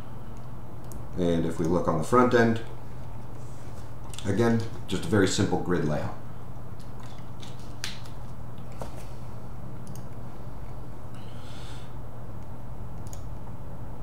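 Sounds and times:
low electrical hum: 0.0 - 14.0
computer mouse clicks: 0.3 - 1.0, 9.8 - 10.2, 12.4 - 13.3
soft breath or rustle: 11.2 - 12.0.

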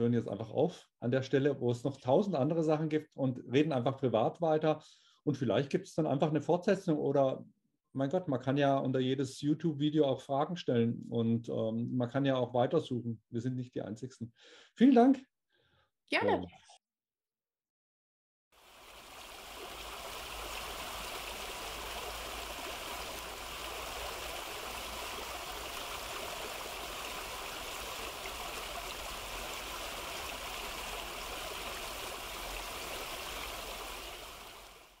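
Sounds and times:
fountain water splashing into basin: 18.6 - 35.0.

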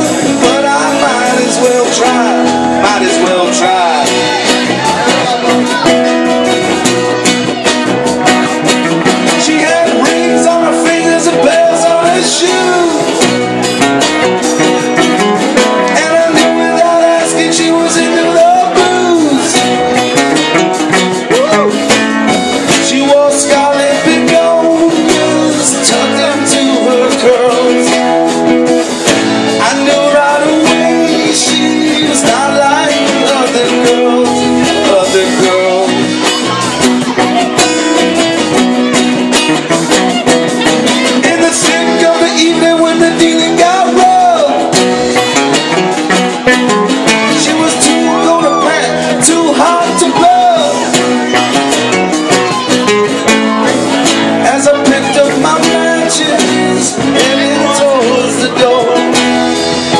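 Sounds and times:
live rock band playing: 0.0 - 59.9.

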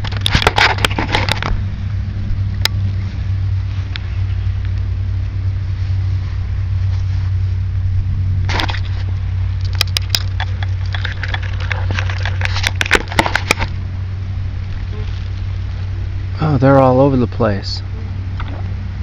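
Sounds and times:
sharp clicks and scrapes: 0.0 - 1.6, 8.5 - 13.7.

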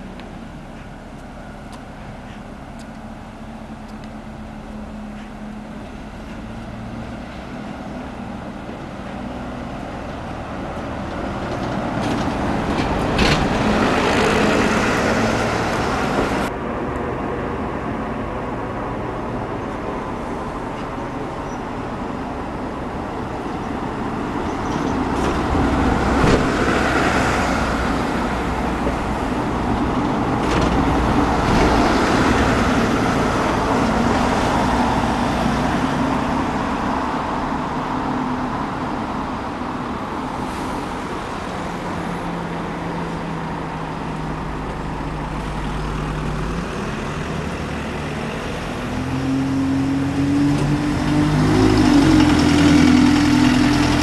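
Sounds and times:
vehicle engine hum: 0.0 - 54.0
vehicles passing: 0.0 - 54.0.

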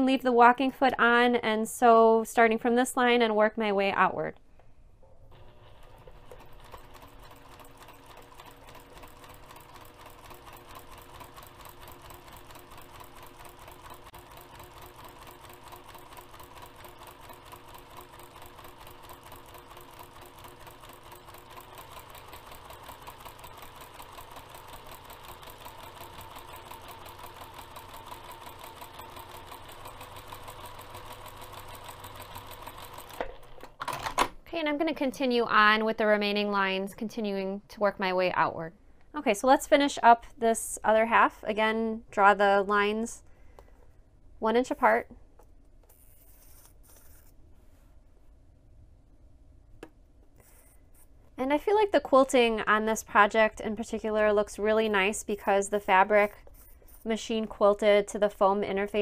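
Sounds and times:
sewing machine stitching: 5.3 - 34.3.

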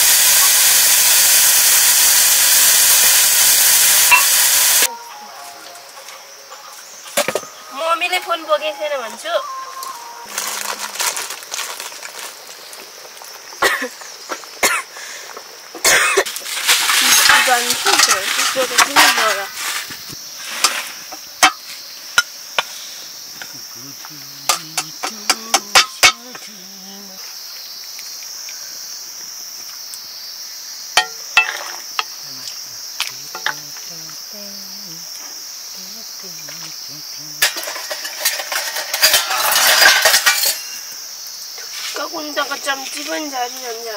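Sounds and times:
high-pitched insect chorus: 0.0 - 43.9
person coughing: 13.6 - 13.9, 14.6 - 14.9, 15.8 - 16.3
person talking: 17.0 - 19.5, 23.5 - 27.2, 32.3 - 35.1, 35.8 - 37.6
faint low voice murmuring: 23.5 - 27.2.

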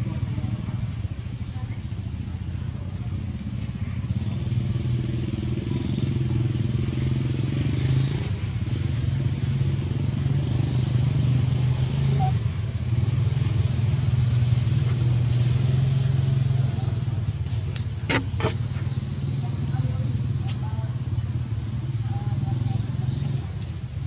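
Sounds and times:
engine running steadily: 0.0 - 24.0.

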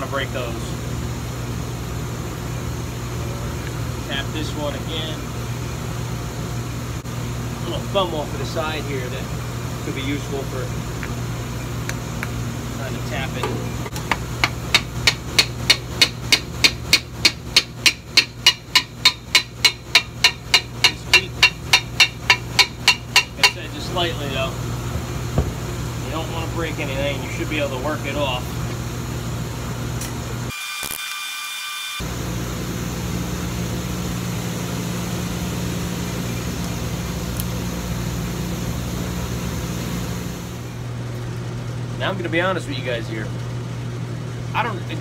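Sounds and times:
steady low hum: 0.0 - 30.5.

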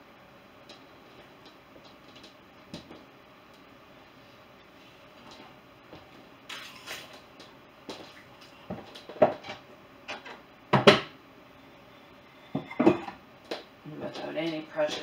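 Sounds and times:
dishes clinking and knocking: 12.5 - 13.2.

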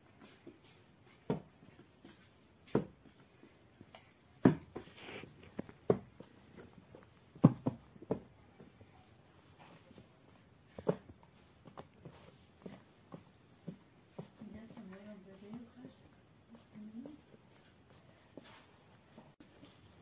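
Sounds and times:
hands rubbing with flour: 4.8 - 6.9
dough balls thumping on cloth: 7.3 - 8.4.

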